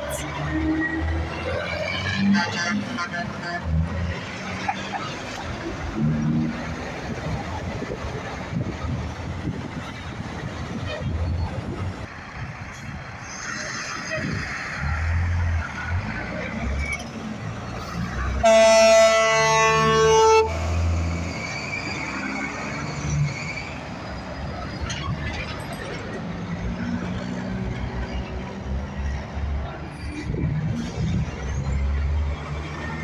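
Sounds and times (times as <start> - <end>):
diesel truck engines rumbling: 0.0 - 33.0
truck air horn blast: 18.4 - 20.8.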